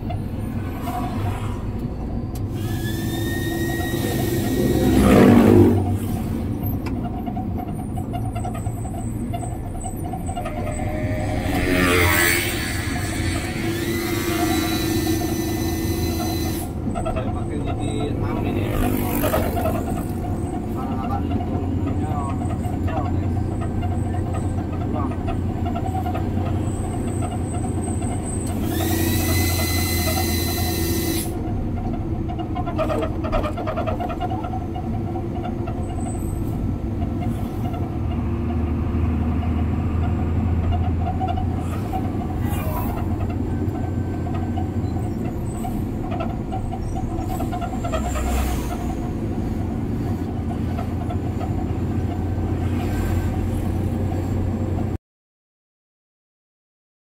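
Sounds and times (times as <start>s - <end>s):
diesel truck engine running: 0.0s - 55.0s
high-pitched horn blast: 10.3s - 13.6s.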